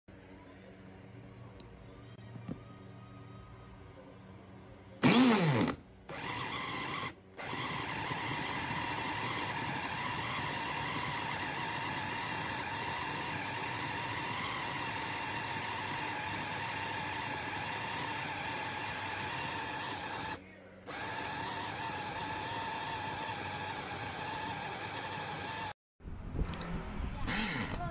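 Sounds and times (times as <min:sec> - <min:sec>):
electric chopper motor whining: 0:05.0 - 0:25.7, 0:26.4 - 0:27.9.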